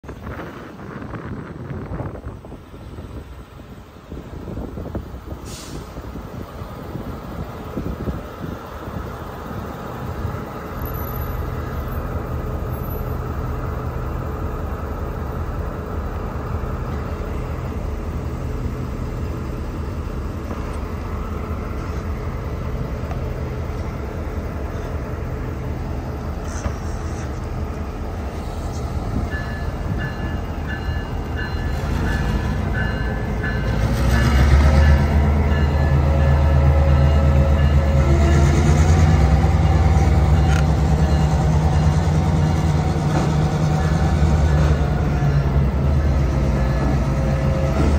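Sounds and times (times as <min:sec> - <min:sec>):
locomotive engine rumble: 0:00.0 - 0:47.9.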